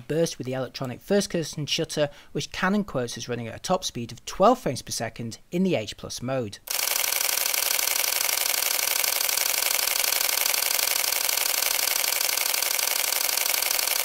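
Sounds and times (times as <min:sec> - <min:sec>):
rapid camera shutter clicks: 0:06.7 - 0:14.0.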